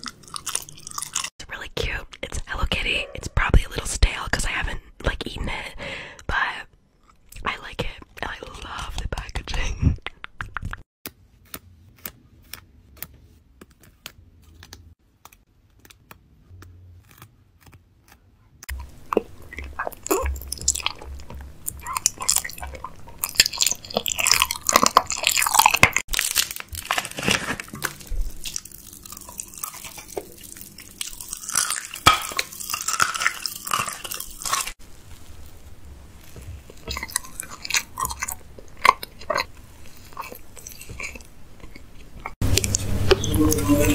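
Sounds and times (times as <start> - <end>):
person chewing crunchy food: 0.0 - 1.4, 13.7 - 43.9.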